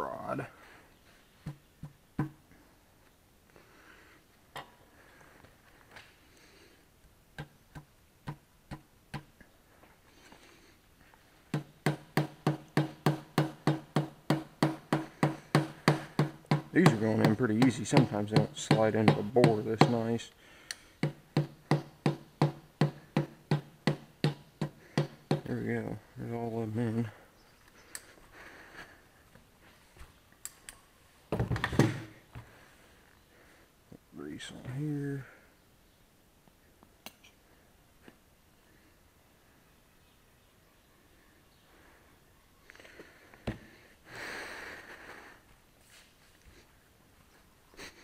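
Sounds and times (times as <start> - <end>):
hammer tapping a piston: 11.6 - 20.0, 21.0 - 25.5.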